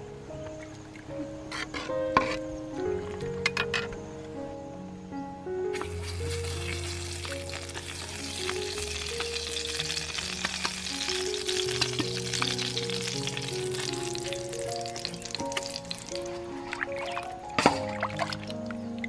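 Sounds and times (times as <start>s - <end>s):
background music: 0.0s - 19.0s
oil sizzling and crackling: 5.7s - 19.0s.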